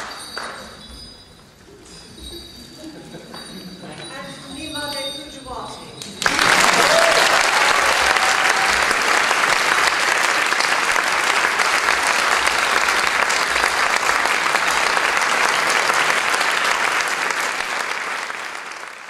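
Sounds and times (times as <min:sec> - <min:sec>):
audience applauding: 0:00.0 - 0:00.6, 0:06.2 - 0:19.0.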